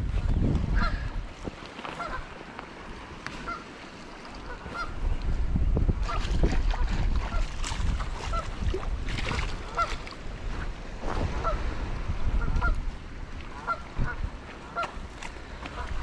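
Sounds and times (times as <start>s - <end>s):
geese honking: 1.8s - 2.3s, 3.4s - 3.7s, 4.4s - 5.0s, 9.6s - 10.0s, 13.5s - 15.0s, 15.6s - 16.0s.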